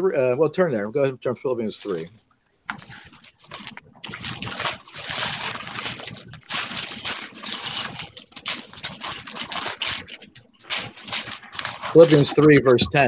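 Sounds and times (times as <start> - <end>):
book pages turning: 1.8 - 2.1, 2.7 - 13.0.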